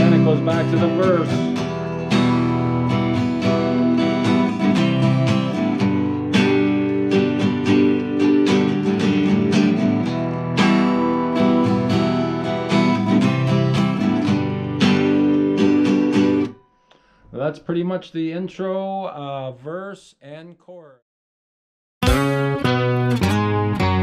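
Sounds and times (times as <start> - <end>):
acoustic guitar strumming: 0.0 - 17.1, 22.0 - 24.0.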